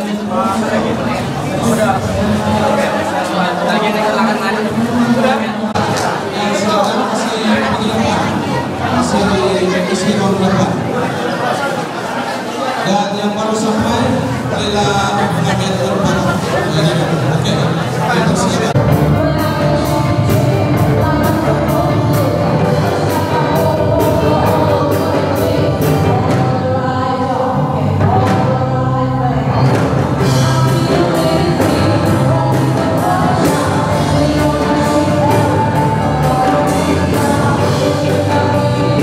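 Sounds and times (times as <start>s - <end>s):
live band playing: 0.0s - 11.5s, 13.5s - 39.0s
woman singing through microphone: 15.1s - 39.0s.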